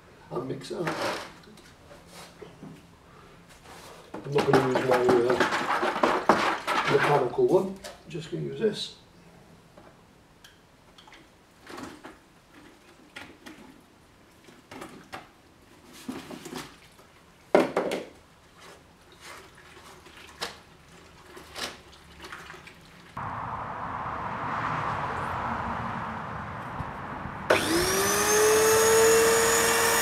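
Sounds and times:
steady noise: 0:23.2 - 0:28.4.

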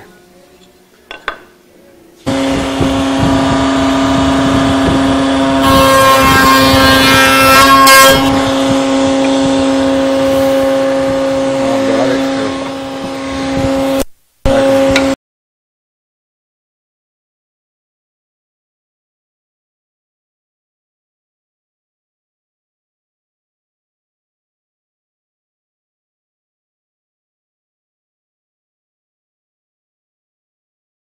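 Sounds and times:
router whining: 0:02.2 - 0:15.2
router bit cutting wood: 0:02.3 - 0:15.2.

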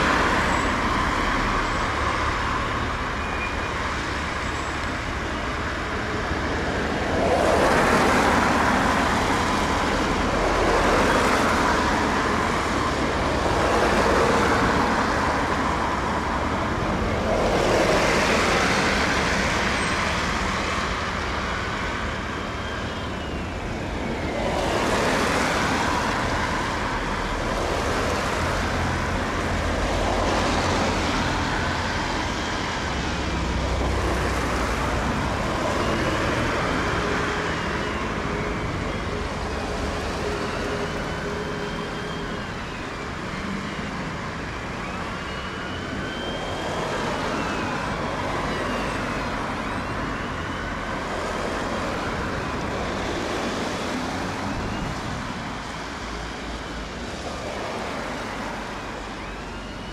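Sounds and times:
diesel train rumbling: 0:00.0 - 0:59.9
traffic passing: 0:00.0 - 0:59.9
high sliding squeals: 0:35.1 - 0:59.9.

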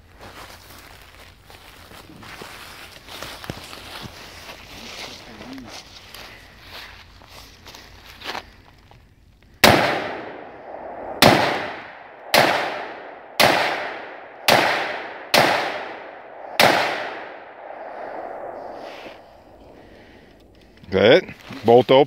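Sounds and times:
rifle shots with echo: 0:09.6 - 0:20.2.

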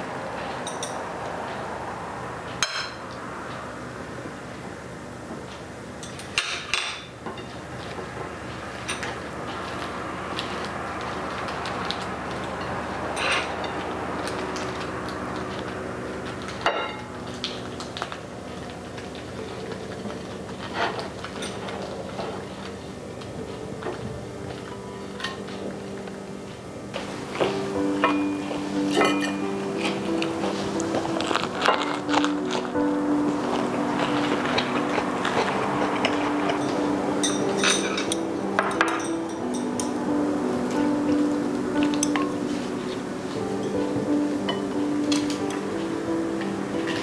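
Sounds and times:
rice paper rustling: 0:07.5 - 0:26.4, 0:29.4 - 0:37.2
background music: 0:08.4 - 0:47.0.

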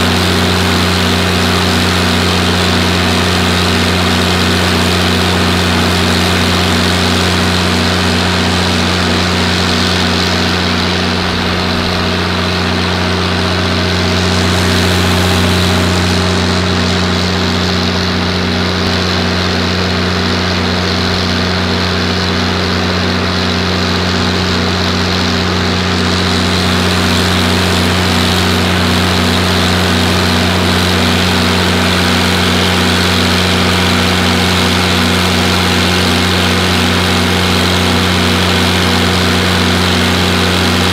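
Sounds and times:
diesel engine droning: 0:00.0 - 0:40.9.

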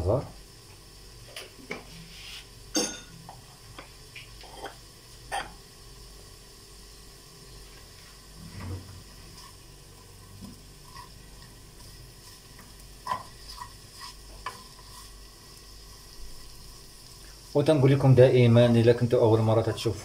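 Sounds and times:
vegetables sizzling in a frying pan: 0:00.0 - 0:20.0
wooden spoon scraping a pan: 0:08.2 - 0:15.6.

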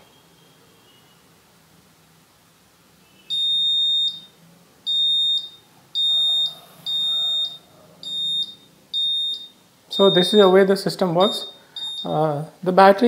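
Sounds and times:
buzzer beeping high tone: 0:03.1 - 0:12.3.

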